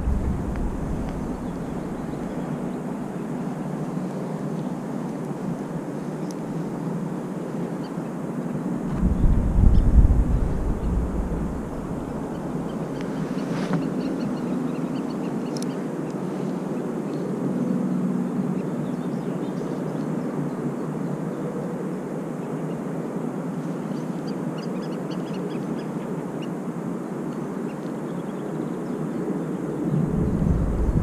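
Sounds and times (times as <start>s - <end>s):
faint low drone: 0.0s - 4.8s, 8.7s - 13.4s, 29.8s - 31.0s
rushing outdoor noise: 0.0s - 31.0s.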